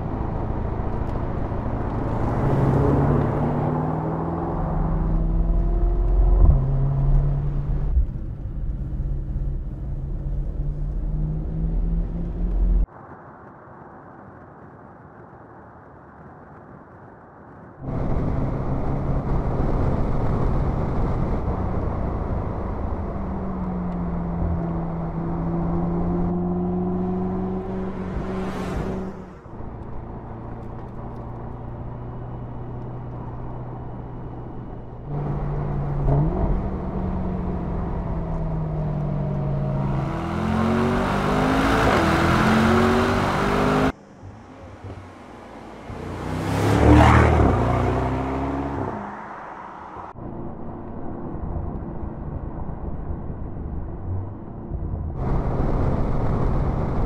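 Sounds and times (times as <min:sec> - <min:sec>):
car engine accelerating: 0:00.0 - 0:12.9, 0:17.9 - 0:57.0
rising whoosh: 0:25.9 - 0:29.6.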